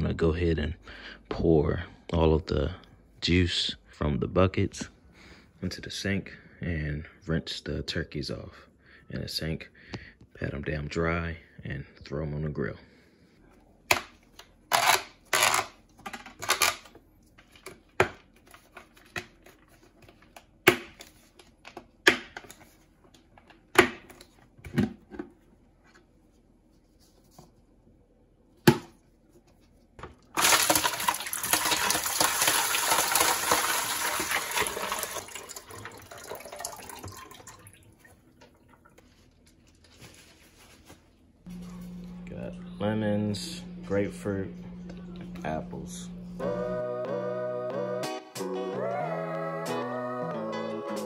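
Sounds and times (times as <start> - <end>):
liquid pouring into sink: 30.4 - 39.0.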